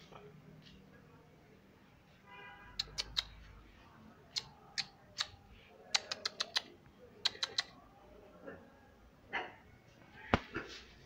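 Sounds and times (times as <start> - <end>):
tongue clicks: 2.8 - 3.4, 4.3 - 7.8.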